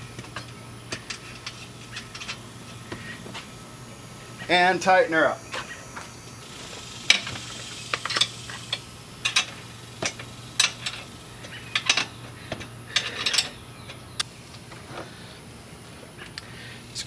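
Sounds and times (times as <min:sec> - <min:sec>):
ratchet wrench clicking: 0:06.5 - 0:12.1.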